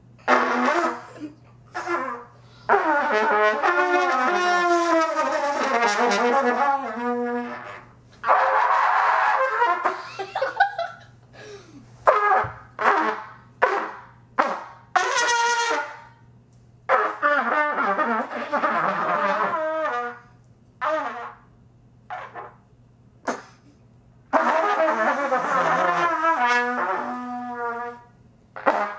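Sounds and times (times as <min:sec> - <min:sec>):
out-of-tune trumpet blasts: 0:00.2 - 0:01.2, 0:01.8 - 0:10.0, 0:12.0 - 0:16.3, 0:16.9 - 0:21.5, 0:22.1 - 0:22.6, 0:24.3 - 0:28.9.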